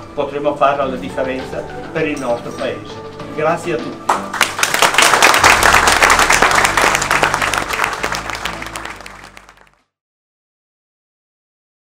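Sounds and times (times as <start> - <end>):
background music: 0.0 - 9.9
audience applauding: 4.1 - 9.8.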